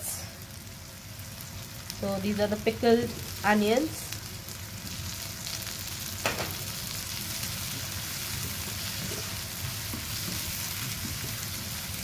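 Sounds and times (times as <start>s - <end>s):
vegetables sizzling in oil: 0.0s - 12.0s
spatula stirring in wok: 7.2s - 12.0s.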